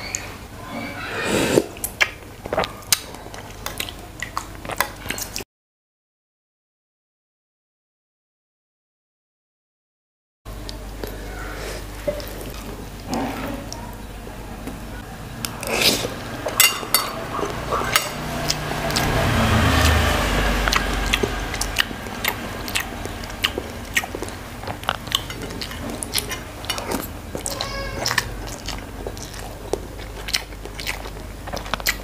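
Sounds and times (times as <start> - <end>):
person chewing and biting: 1.4 - 5.4, 17.4 - 32.0
cutlery clinking on dishes: 16.6 - 18.2.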